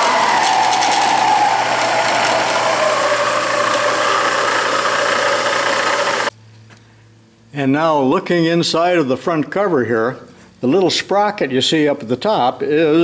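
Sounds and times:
drill press humming and whining: 0:00.0 - 0:06.3.

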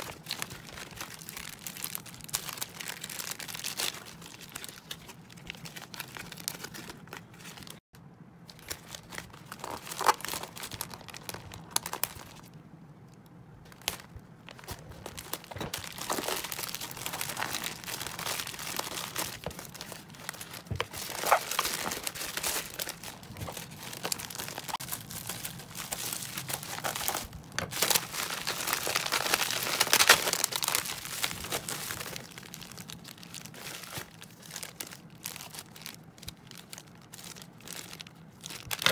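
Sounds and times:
plastic packaging crinkling: 0:00.0 - 0:38.9
plastic mailer tearing open: 0:08.6 - 0:12.4, 0:13.7 - 0:38.9.

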